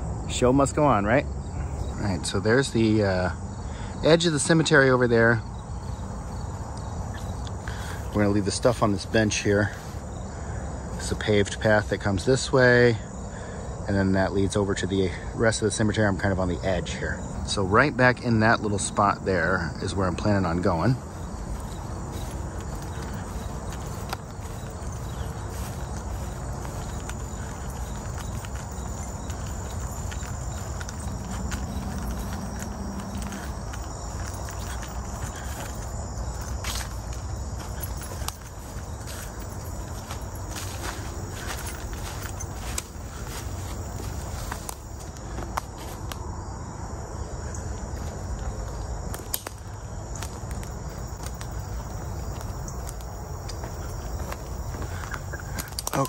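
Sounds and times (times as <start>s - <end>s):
continuous low rumble: 0.0s - 56.0s
insects chirring: 0.0s - 56.0s
footsteps on grass: 5.7s - 12.0s, 18.8s - 46.2s, 47.8s - 56.0s
sticks snapping: 49.1s - 51.5s, 55.5s - 56.0s.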